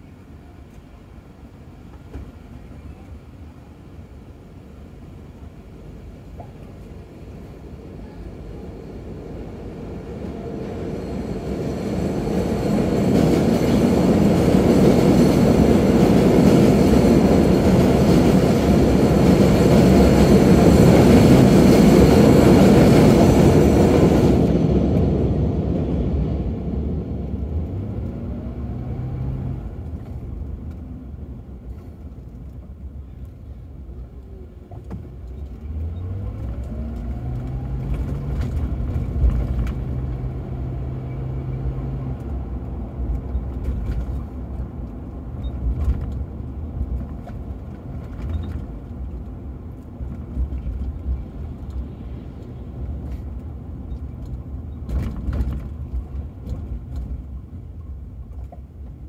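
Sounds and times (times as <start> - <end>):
subway train rumbling overhead: 0.0 - 59.0
car accelerating: 35.4 - 42.4.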